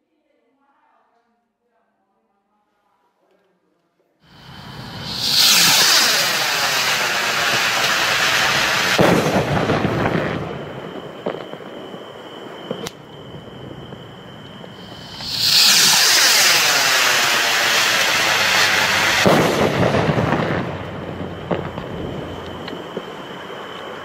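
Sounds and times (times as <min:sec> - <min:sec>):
firework bang: 0:04.3 - 0:24.0
rocket launching with rushing hiss: 0:04.3 - 0:24.0
firework pops: 0:04.4 - 0:13.2, 0:13.8 - 0:24.0.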